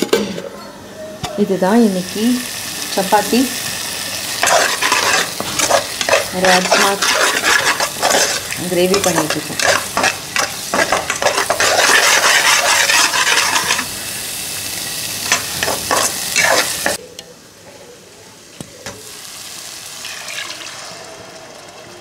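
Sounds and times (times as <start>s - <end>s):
masala sizzling in oil: 1.4s - 17.6s, 18.8s - 22.0s
steel spatula scraping pan: 4.4s - 13.9s, 15.3s - 17.0s.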